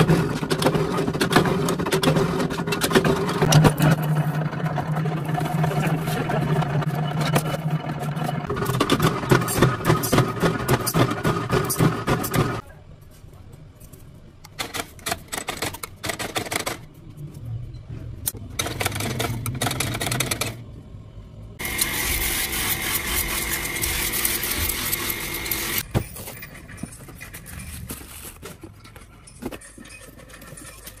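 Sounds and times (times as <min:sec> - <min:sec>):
power press rhythmic strokes: 0:00.0 - 0:12.6, 0:21.6 - 0:25.8.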